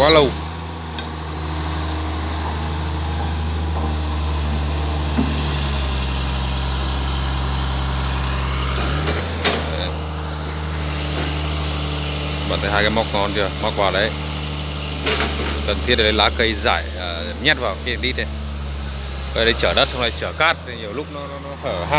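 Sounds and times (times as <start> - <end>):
excavator diesel engine running: 0.0 - 21.9.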